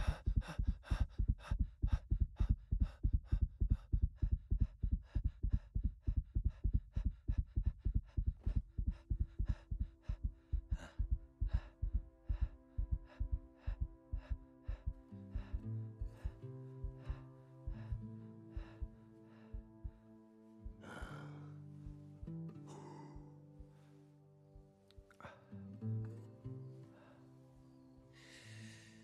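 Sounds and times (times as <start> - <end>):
racing heartbeat: 0.0 - 20.0
soft held music chord: 0.0 - 29.0.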